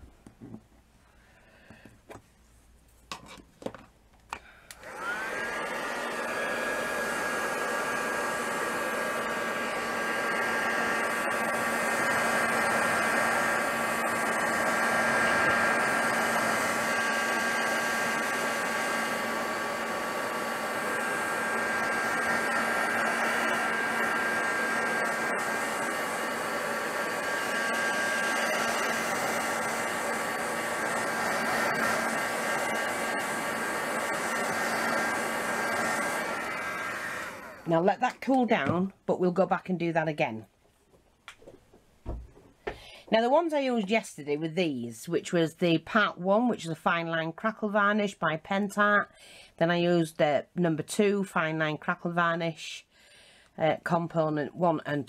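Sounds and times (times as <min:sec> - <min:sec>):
hot-air blower motor whine: 0:04.6 - 0:37.8.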